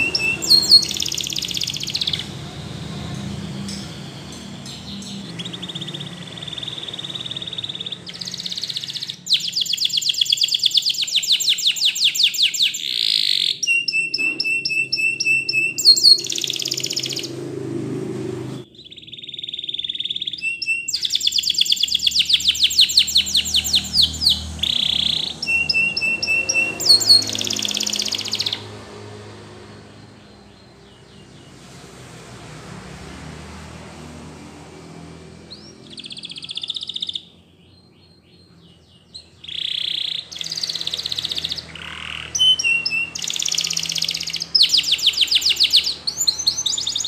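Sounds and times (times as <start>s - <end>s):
canary singing: 0.0s - 47.0s.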